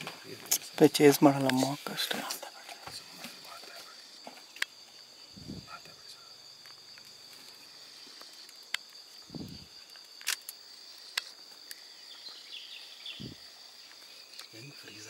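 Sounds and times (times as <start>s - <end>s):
crickets droning: 0.0s - 15.0s
sharp clicks: 10.0s - 11.8s.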